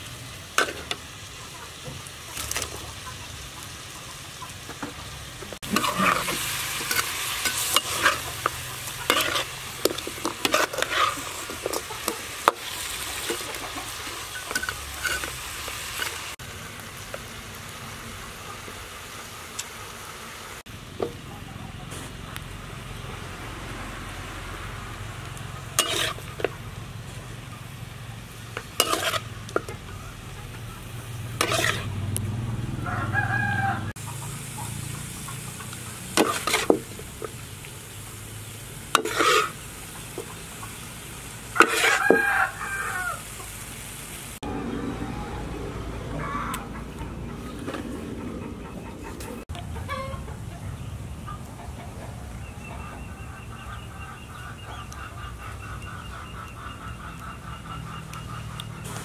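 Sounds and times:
food sizzling in a wok: 0:00.0 - 0:44.6, 0:58.8 - 0:59.0
metal spatula scraping wok: 0:00.5 - 0:01.0, 0:05.6 - 0:16.4, 0:25.6 - 0:32.2, 0:35.1 - 0:37.5, 0:38.9 - 0:40.4, 0:41.4 - 0:43.0.

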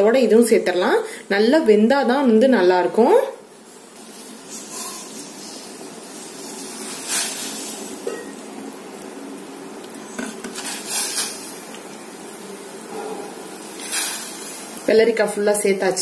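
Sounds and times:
water boiling in a pot: 0:00.0 - 0:16.0.

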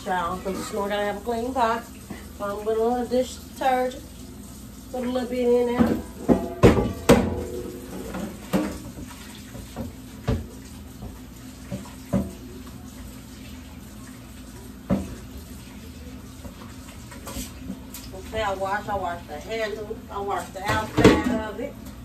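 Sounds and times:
pot being scrubbed: 0:00.0 - 0:21.7
pot knocking against sink: 0:05.7 - 0:12.4, 0:20.6 - 0:21.6
tap running into metal sink: 0:05.7 - 0:12.5.

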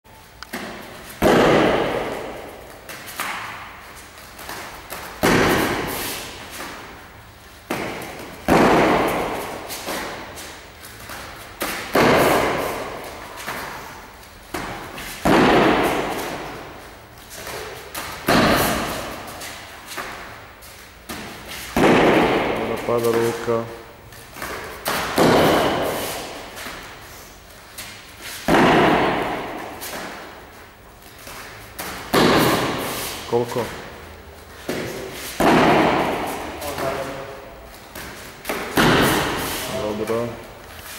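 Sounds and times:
heavy echoing thuds: 0:00.5 - 0:03.8, 0:07.6 - 0:10.3, 0:14.5 - 0:16.8, 0:21.0 - 0:23.3, 0:24.4 - 0:27.0, 0:28.4 - 0:30.5, 0:34.6 - 0:40.5.

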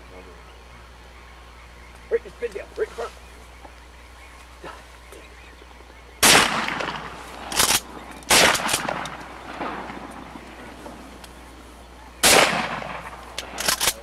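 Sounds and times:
shotgun shots with echo: 0:06.2 - 0:10.4, 0:12.2 - 0:14.0.

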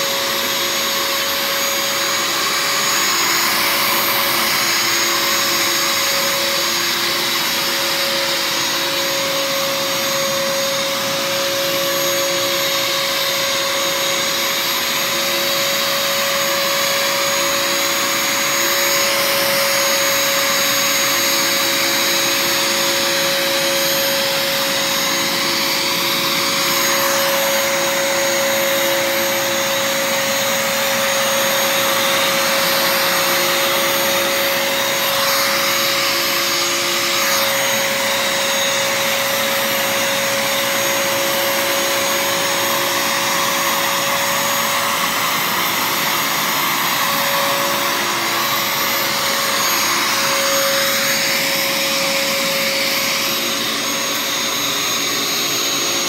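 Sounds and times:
vacuum cleaner running: 0:00.0 - 0:56.0.

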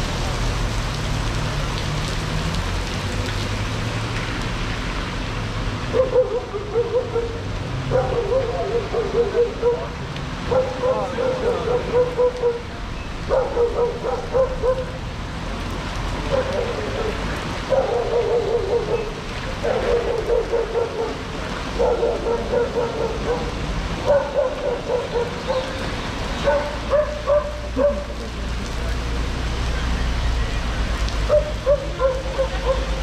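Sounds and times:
dog barking: 0:05.9 - 0:12.7, 0:13.3 - 0:15.0, 0:16.2 - 0:25.8, 0:26.4 - 0:28.2, 0:31.3 - 0:33.0.

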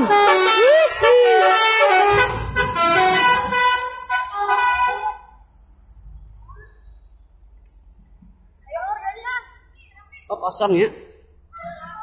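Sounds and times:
bus horn playing a melody: 0:00.0 - 0:05.4
low engine rumble: 0:00.0 - 0:08.7.

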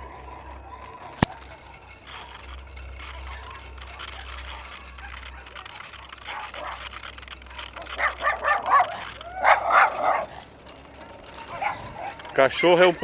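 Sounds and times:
dog barking: 0:04.0 - 0:06.9, 0:07.8 - 0:10.4.

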